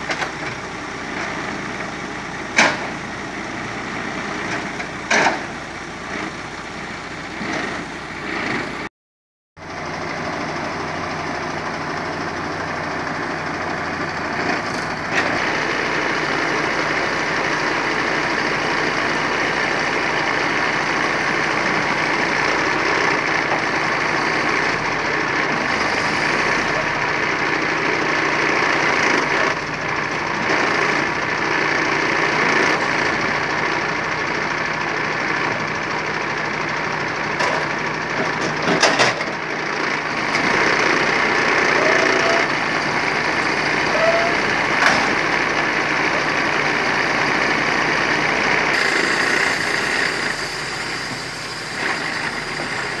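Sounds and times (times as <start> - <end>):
diesel truck engine under load: 0.0 - 8.9, 9.6 - 53.0
hydraulic crane lifting log: 0.0 - 8.9, 9.6 - 53.0.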